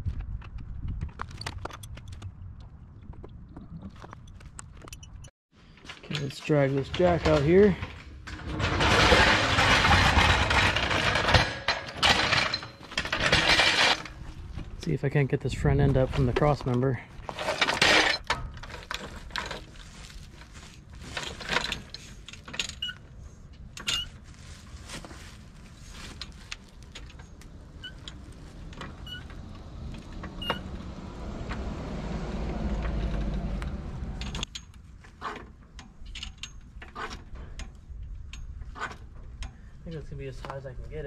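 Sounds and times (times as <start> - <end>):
floor jack metal clanks and clicks: 6.0 - 14.7, 17.3 - 19.7.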